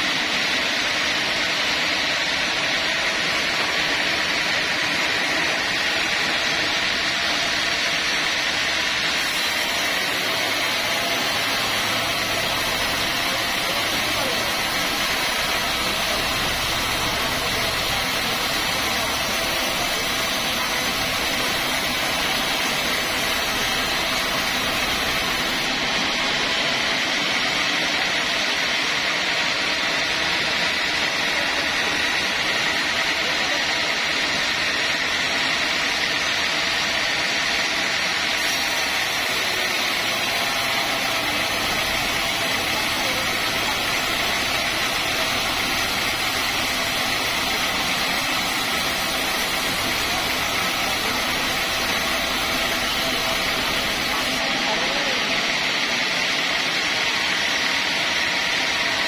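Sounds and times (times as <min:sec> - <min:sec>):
band saw cutting log: 0:03.0 - 0:28.4, 0:38.4 - 0:54.4.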